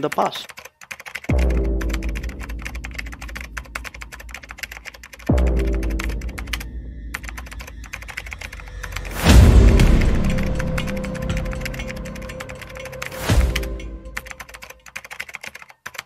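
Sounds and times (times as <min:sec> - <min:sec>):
keyboard typing clicks: 0:00.0 - 0:16.0
deep boom falling in pitch: 0:09.2 - 0:11.8.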